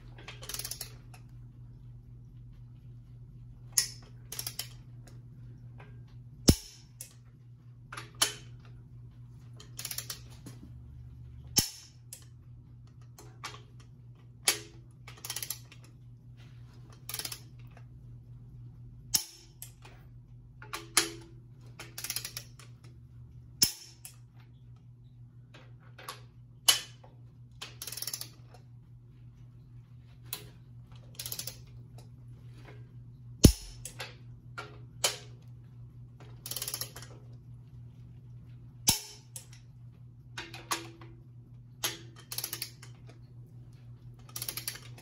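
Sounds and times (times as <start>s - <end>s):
torque wrench clicking: 0.4s - 1.0s, 3.8s - 4.8s, 6.5s - 7.2s, 9.8s - 10.2s, 11.6s - 12.3s, 14.5s - 15.7s, 17.1s - 17.5s, 22.0s - 22.5s, 27.8s - 28.4s, 31.2s - 31.6s, 33.4s - 34.0s, 36.4s - 37.1s, 41.9s - 42.9s, 44.3s - 45.0s
torque wrench ratcheting: 0.4s - 1.0s, 3.8s - 4.7s, 6.5s - 7.1s, 9.8s - 10.2s, 15.2s - 15.6s, 17.1s - 17.4s, 22.0s - 22.5s, 27.8s - 28.4s, 31.2s - 31.6s, 33.4s - 34.0s, 36.4s - 37.0s, 42.2s - 42.8s, 44.4s - 45.0s.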